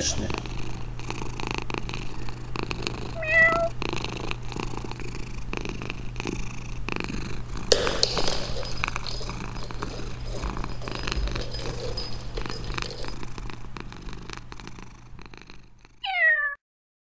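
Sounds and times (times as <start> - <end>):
cat purring: 0.0 - 16.0
cat meowing: 3.2 - 3.7, 16.0 - 16.6.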